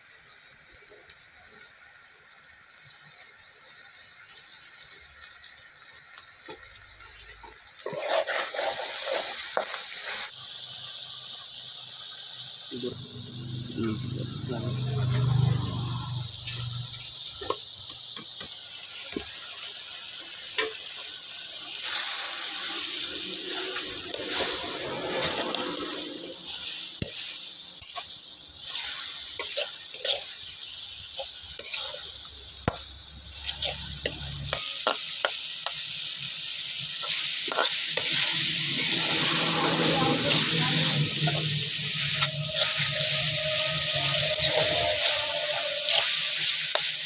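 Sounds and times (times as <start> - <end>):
fish frying and sizzling: 0.0 - 47.0
metal spatula scraping pan: 7.8 - 10.3, 23.5 - 30.5, 31.2 - 35.1, 37.0 - 47.0.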